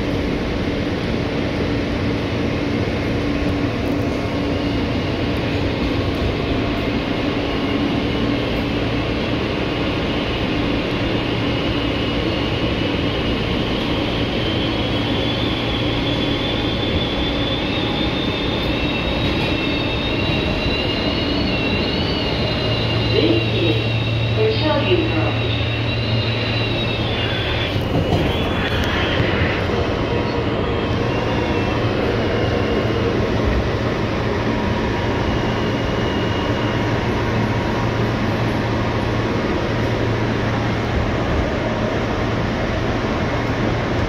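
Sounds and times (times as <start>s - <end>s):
subway car wheels running: 0.0s - 44.0s
high whine rising in pitch: 14.0s - 34.0s.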